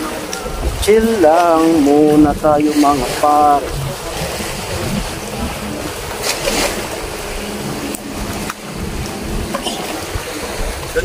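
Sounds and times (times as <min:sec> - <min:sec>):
rushing water: 0:00.0 - 0:11.0
short low hum: 0:03.6 - 0:10.9.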